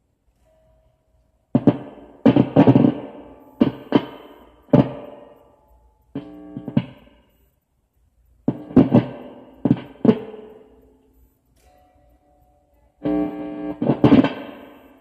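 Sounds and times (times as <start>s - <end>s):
electric guitar strummed chords: 1.6s - 5.6s, 6.2s - 7.2s, 8.5s - 15.0s.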